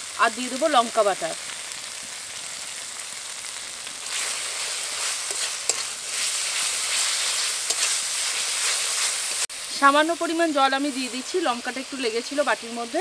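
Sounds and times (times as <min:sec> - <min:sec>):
paste sizzling in oil: 0:00.0 - 0:13.0
metal spatula scraping pan: 0:04.0 - 0:09.4.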